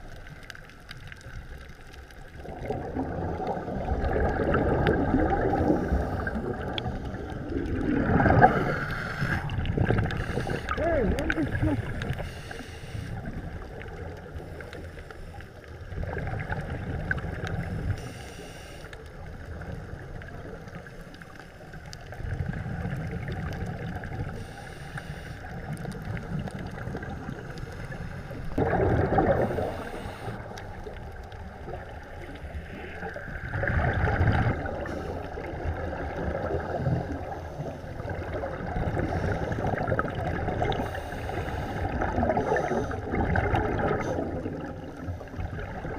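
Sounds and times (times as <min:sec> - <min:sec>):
exhaled bubbles gurgling: 0:00.0 - 0:18.2, 0:19.0 - 0:45.9
steady rushing hiss: 0:08.5 - 0:15.8, 0:17.6 - 0:19.7, 0:24.1 - 0:25.8, 0:29.4 - 0:31.6, 0:40.7 - 0:43.1.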